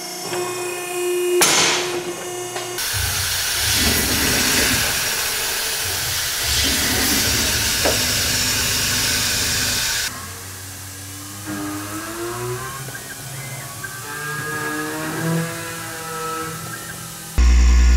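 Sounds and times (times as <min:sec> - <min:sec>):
milling machine running: 0:02.0 - 0:10.1
coolant spray hissing: 0:02.8 - 0:10.1.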